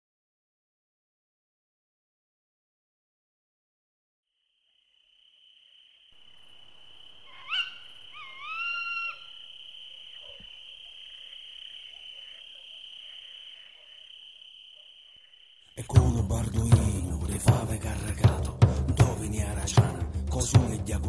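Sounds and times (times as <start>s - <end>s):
night animal whistled calls: 4.4s - 15.9s
high insect drone: 4.4s - 21.0s.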